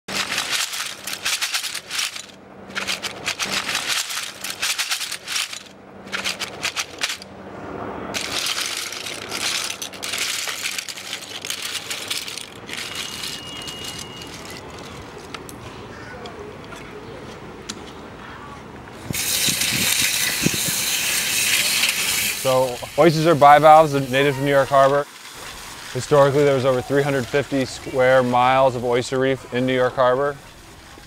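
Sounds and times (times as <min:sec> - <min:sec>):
oyster shells clattering: 0:00.1 - 0:07.3, 0:08.2 - 0:15.5.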